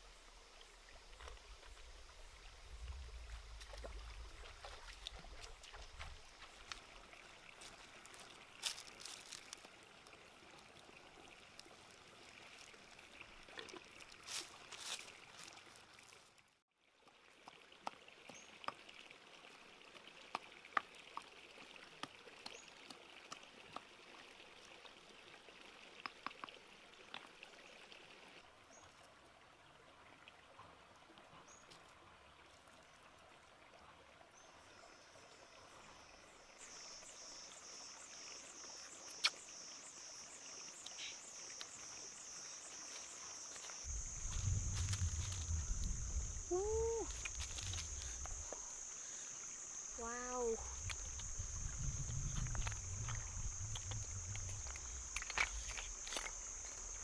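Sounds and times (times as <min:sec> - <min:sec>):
high insect hum: 0:34.4 - 0:57.0
pulsing insect chirp: 0:34.8 - 0:57.0.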